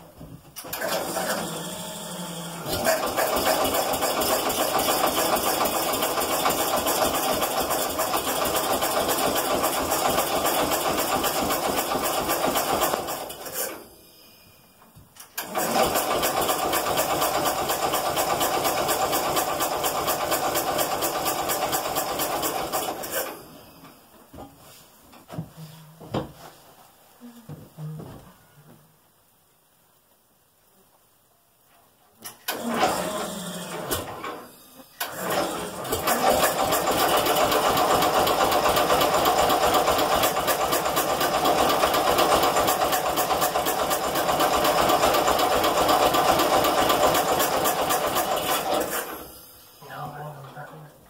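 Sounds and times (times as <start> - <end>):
engine cranking on starter: 0.6 - 13.8, 15.2 - 23.4, 32.3 - 49.4.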